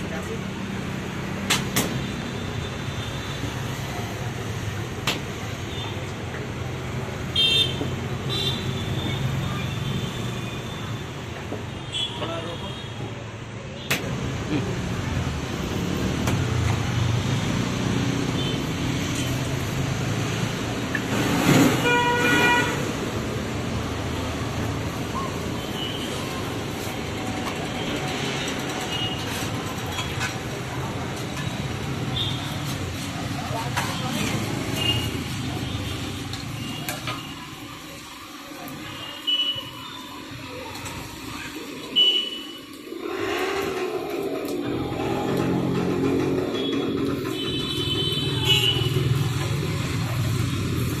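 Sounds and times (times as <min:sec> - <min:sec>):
street traffic: 0:00.0 - 0:51.0
vehicle horn toot: 0:21.8 - 0:22.8.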